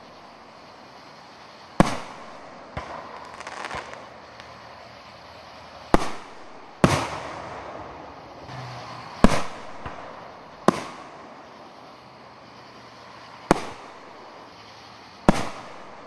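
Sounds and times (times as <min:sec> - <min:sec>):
firework bangs: 0:01.7 - 0:11.6, 0:12.6 - 0:16.0
small firework pops: 0:01.8 - 0:04.6, 0:05.9 - 0:07.9, 0:09.2 - 0:11.3, 0:13.4 - 0:14.2, 0:15.2 - 0:16.0.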